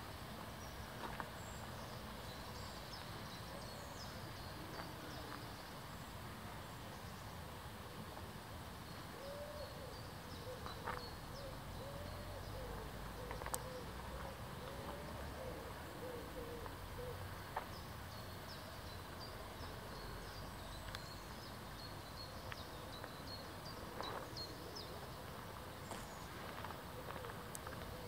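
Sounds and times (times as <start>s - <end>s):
faint clicks: 13.2s - 15.0s.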